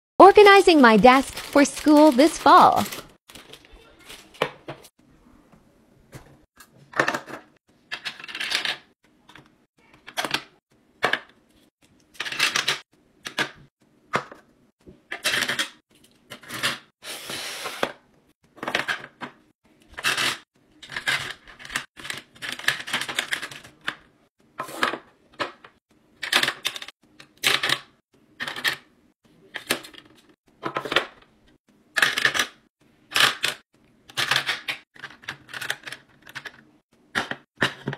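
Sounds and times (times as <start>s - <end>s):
plastic items clattering: 0.2s - 4.7s.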